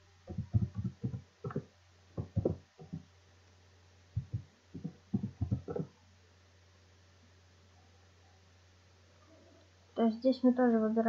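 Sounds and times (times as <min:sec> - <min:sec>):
low steady hum: 0:00.0 - 0:11.0
keyboard typing: 0:00.3 - 0:03.0, 0:04.2 - 0:06.0.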